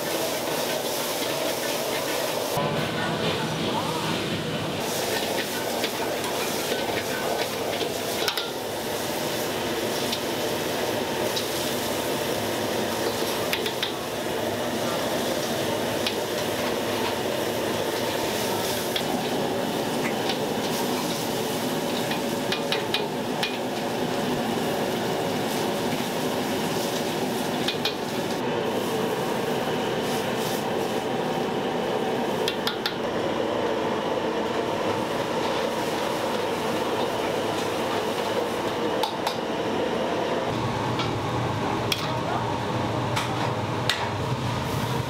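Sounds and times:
kitchen noise: 0.0 - 29.4
metal utensils clinking in woks: 5.1 - 8.6.

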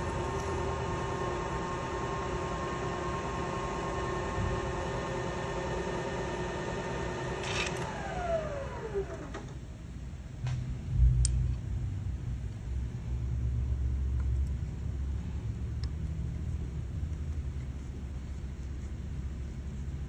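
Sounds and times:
milling machine motor whine: 0.0 - 9.6.

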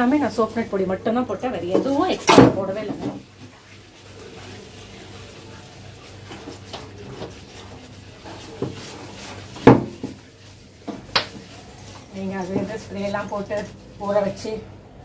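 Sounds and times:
faint rubbing: 3.3 - 14.6.

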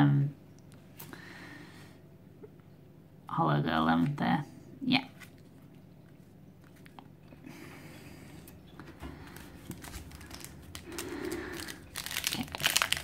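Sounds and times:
wrapper rustling: 9.2 - 13.0.

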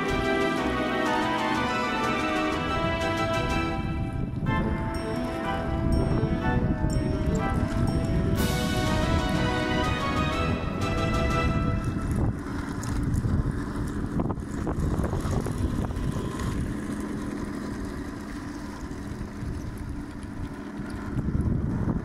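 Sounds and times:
model tank electric drive hum: 0.0 - 22.0
wind rumbling on microphone: 2.2 - 22.0
tracks clicking on gravel: 11.1 - 21.3.

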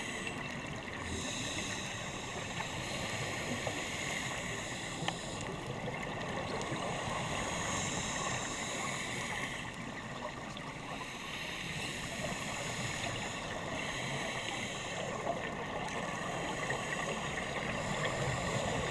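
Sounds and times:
underwater wash hiss: 0.0 - 10.0, 10.9 - 18.9
faint clicks: 3.6 - 6.8.

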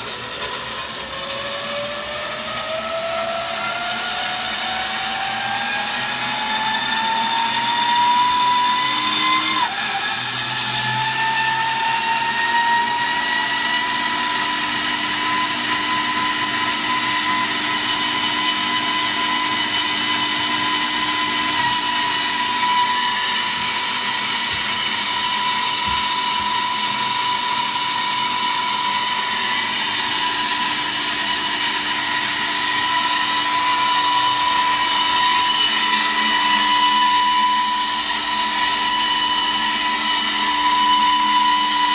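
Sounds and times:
turbine generator whining: 10.9 - 41.9.

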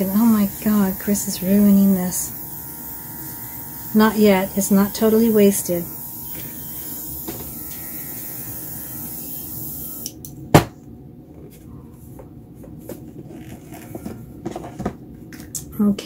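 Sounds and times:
airbrush hissing: 0.0 - 10.1.

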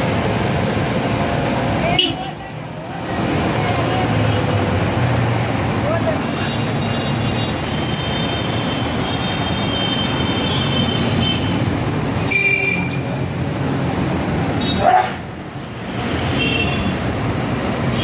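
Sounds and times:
din of vehicle engines: 0.0 - 18.0.

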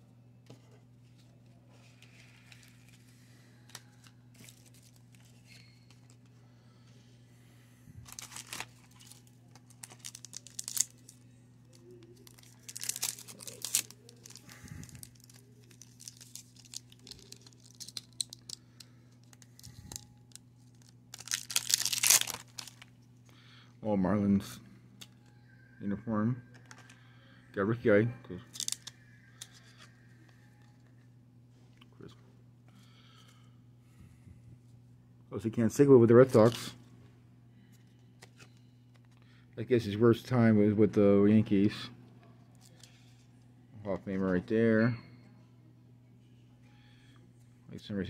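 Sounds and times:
steady low hum: 0.0 - 48.0
foil wrapper tearing and crinkling: 8.1 - 11.2, 12.1 - 18.6, 19.2 - 22.9, 28.5 - 28.9.

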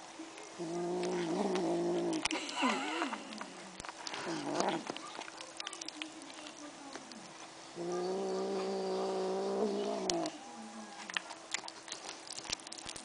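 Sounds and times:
kitten growling: 0.6 - 5.0, 7.8 - 10.4.

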